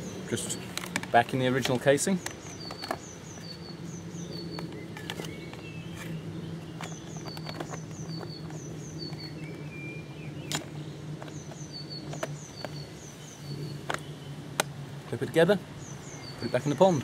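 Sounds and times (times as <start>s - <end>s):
small bird chirping: 0.0s - 14.4s, 15.7s - 17.0s
plastic clicks and knocks: 0.8s - 3.1s, 6.8s - 9.3s.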